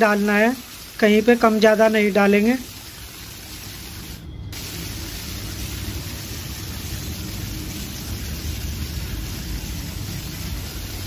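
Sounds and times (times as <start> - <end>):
spray gun hissing: 2.4 - 11.0.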